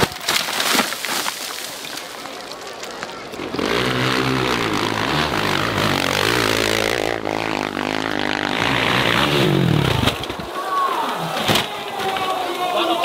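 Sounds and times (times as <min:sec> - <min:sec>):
dirt bike engines revving: 0:03.1 - 0:13.0.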